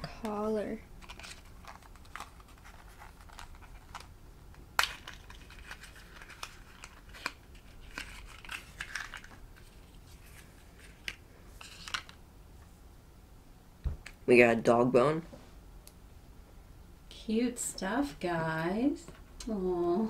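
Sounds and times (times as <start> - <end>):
cardboard crinkling: 1.0 - 4.1, 4.8 - 12.2.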